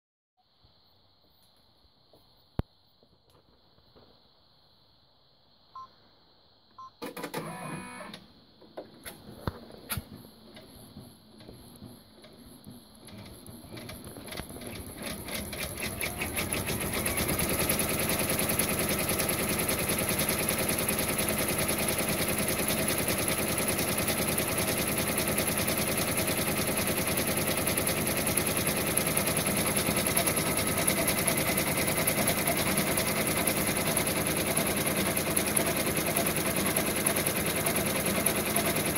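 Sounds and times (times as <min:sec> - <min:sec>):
embroidery machine stitching: 0:13.1 - 0:38.9.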